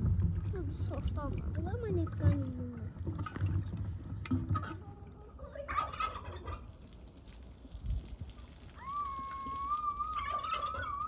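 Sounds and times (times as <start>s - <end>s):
water splashing in a washbasin: 0.0s - 5.0s, 7.2s - 11.0s
fowl warbling call: 8.8s - 11.0s.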